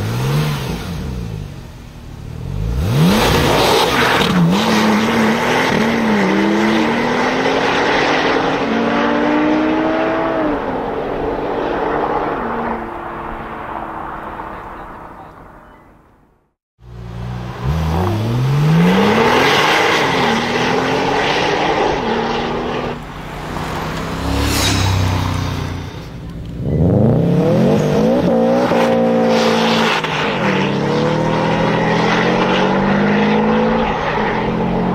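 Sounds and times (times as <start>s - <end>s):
sports car engines accelerating: 0.0s - 16.1s, 16.8s - 34.9s.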